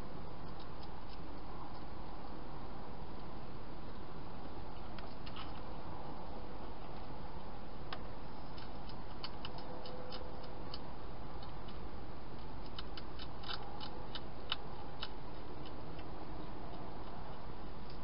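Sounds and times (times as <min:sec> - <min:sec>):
hedgehog crunching dry food: 0:06.8 - 0:18.0.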